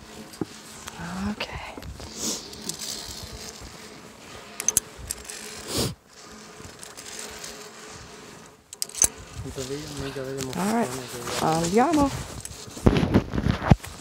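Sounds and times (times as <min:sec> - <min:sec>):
wind buffeting microphone: 0:09.1 - 0:10.5, 0:11.1 - 0:14.0.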